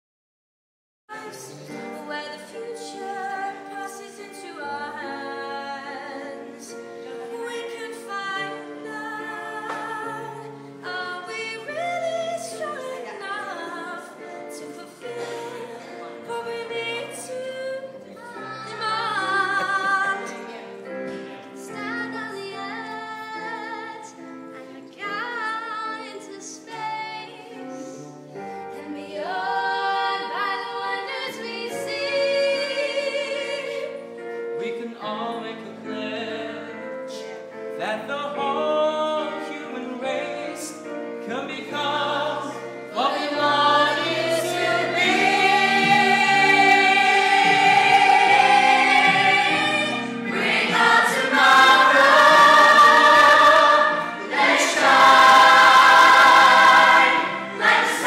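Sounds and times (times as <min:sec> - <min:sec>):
woman singing: 0:01.1 - 0:06.5, 0:07.3 - 0:20.5, 0:21.6 - 0:24.2, 0:24.9 - 0:27.6
musical accompaniment: 0:01.1 - 0:58.0.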